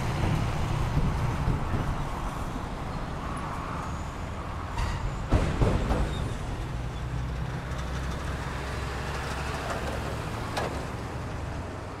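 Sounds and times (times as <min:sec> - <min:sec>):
freight train rumbling on rails: 0:00.0 - 0:12.0
sharp train clanks: 0:04.7 - 0:06.8.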